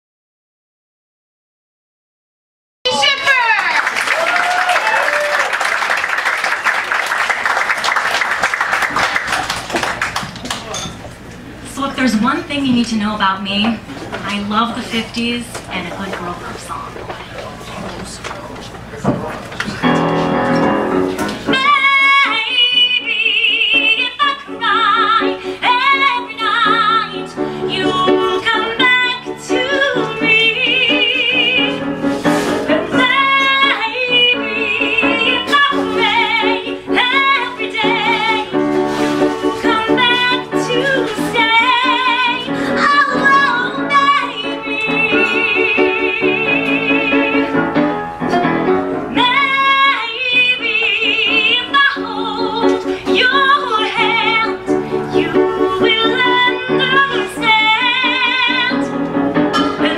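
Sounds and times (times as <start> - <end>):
piano chords: 6.1 - 59.9
soprano singing a ballad: 21.5 - 59.0, 59.6 - 59.9.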